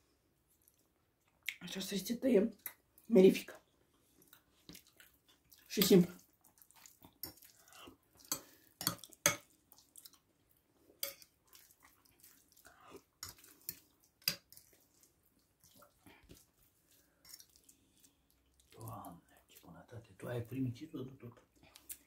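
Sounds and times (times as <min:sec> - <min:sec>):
cutlery clinking on a plate: 0:08.3 - 0:09.5, 0:11.0 - 0:11.3.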